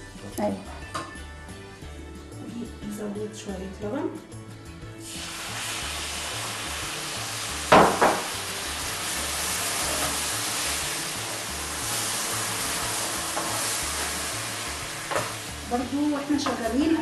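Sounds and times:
background music: 0:00.0 - 0:17.0
milk sizzling in a hot pan: 0:05.0 - 0:17.0.

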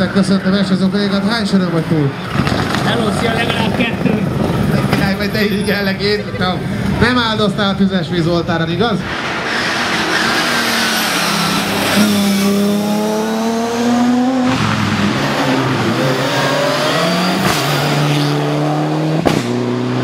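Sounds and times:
car engines revving hard: 0:00.0 - 0:20.0.

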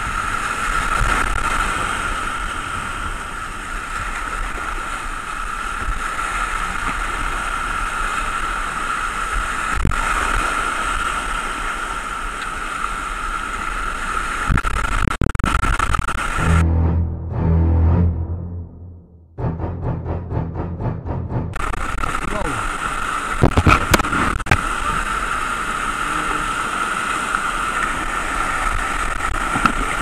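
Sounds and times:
whitewater rapid rushing: 0:21.6 - 0:30.0.

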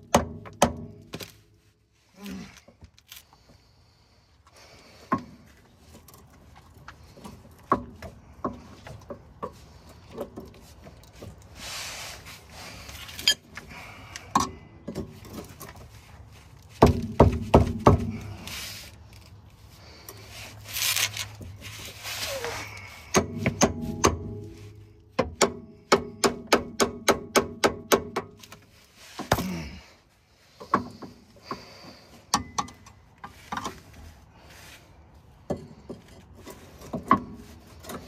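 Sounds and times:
rustling: 0:18.2 - 0:23.1
hammer strikes: 0:23.1 - 0:24.6.

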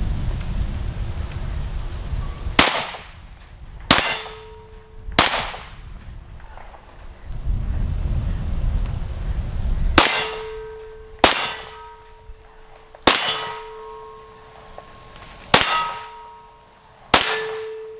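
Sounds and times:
low rumble: 0:00.0 - 0:17.9
pistol shots: 0:02.6 - 0:03.1, 0:03.9 - 0:04.6, 0:05.2 - 0:05.8, 0:10.0 - 0:10.6, 0:11.2 - 0:11.9, 0:13.0 - 0:13.9, 0:15.5 - 0:16.2, 0:17.1 - 0:17.9
metallic ring of steel target: 0:03.9 - 0:05.2, 0:10.0 - 0:16.6, 0:17.2 - 0:17.9.

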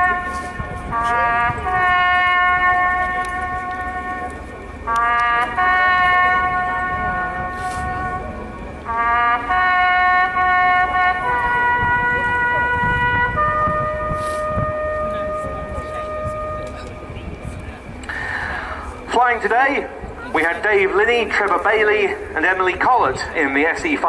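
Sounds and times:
brass horn playing long notes: 0:00.0 - 0:19.0
low rumble: 0:00.0 - 0:21.3.

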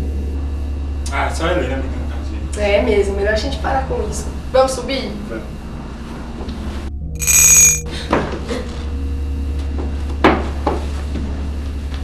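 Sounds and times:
steady low hum: 0:00.0 - 0:10.2
bell ringing: 0:07.2 - 0:07.8.

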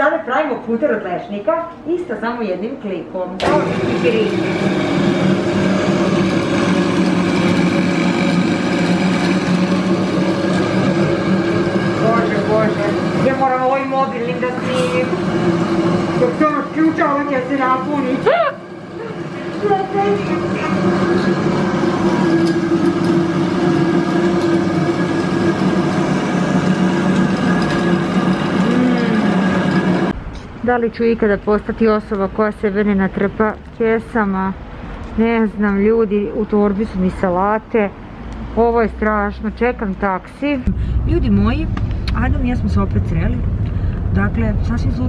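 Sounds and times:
nut butter mill humming: 0:03.4 - 0:30.2.

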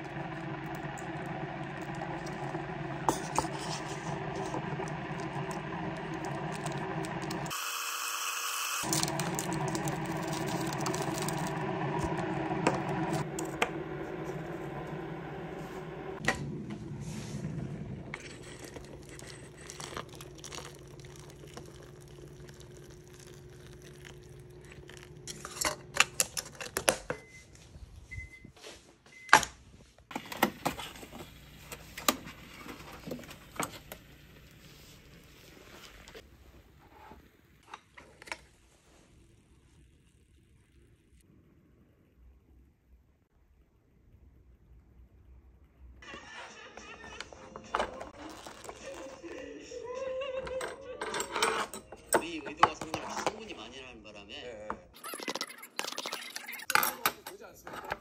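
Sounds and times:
appliance hum: 0:00.0 - 0:58.0
microwave beeps: 0:27.0 - 0:29.5.

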